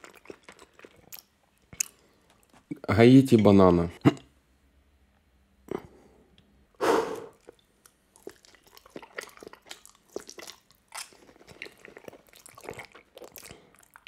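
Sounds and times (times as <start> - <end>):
mouth biting and chewing: 7.3 - 14.0.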